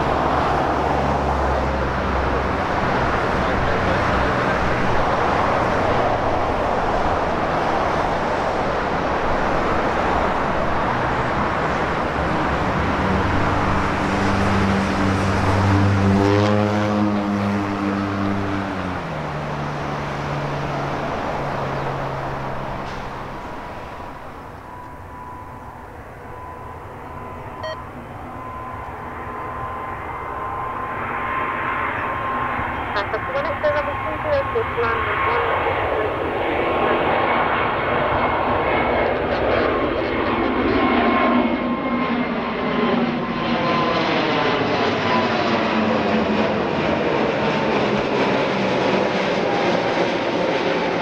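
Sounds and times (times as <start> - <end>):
jet engines roaring: 0.0 - 51.0
thin steady whine: 23.9 - 36.4.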